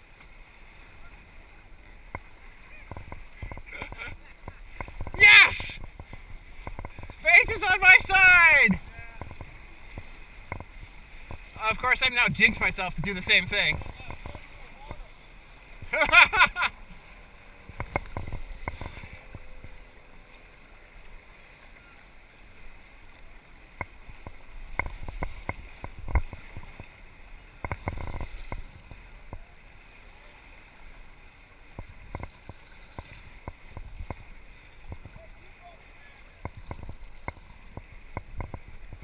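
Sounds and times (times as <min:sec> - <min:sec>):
water rushing along a boat hull: 0:00.0 - 0:39.0.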